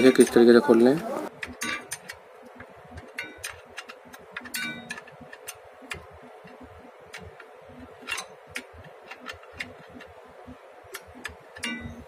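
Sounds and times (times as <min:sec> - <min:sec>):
spanner clinking on metal bolt: 0:01.4 - 0:02.2, 0:03.0 - 0:06.6, 0:11.3 - 0:12.0.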